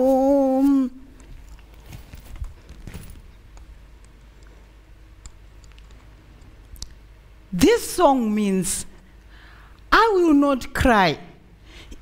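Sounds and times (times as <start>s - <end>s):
bag rustling: 1.2s - 3.5s.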